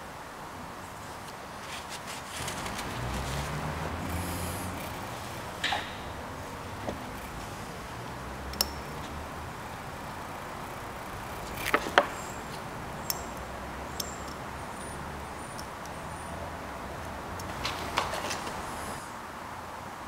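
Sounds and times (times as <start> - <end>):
low background noise: 0.0 - 20.0.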